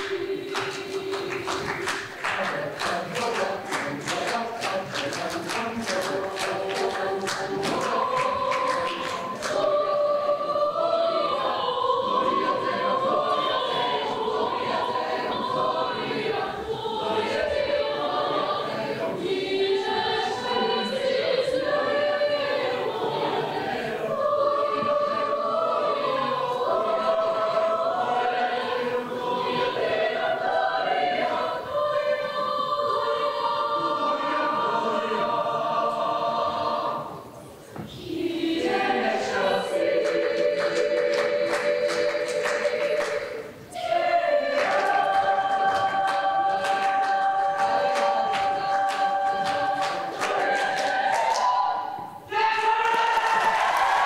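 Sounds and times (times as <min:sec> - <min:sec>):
mixed choir singing: 0:00.0 - 0:54.0.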